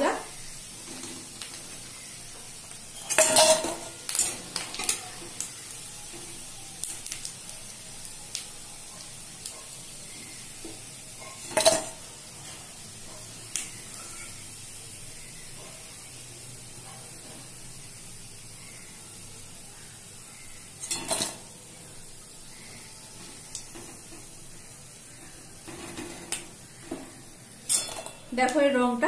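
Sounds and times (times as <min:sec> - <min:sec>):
frying oil sizzling: 0:00.0 - 0:29.0
spatula clanking against metal pan: 0:27.6 - 0:28.6.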